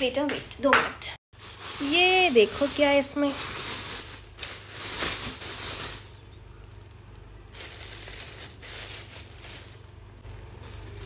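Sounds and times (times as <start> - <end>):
plastic bag rustling: 1.4 - 11.0.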